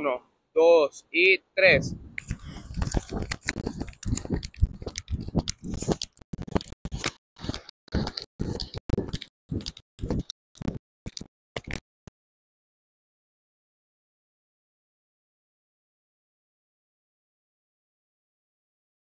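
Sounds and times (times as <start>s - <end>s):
barefoot running on sand: 2.3s - 10.3s.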